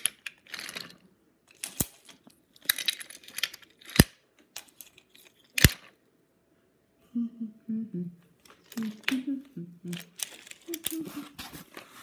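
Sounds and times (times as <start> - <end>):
magnetic couplings clacking: 9.9 - 11.3.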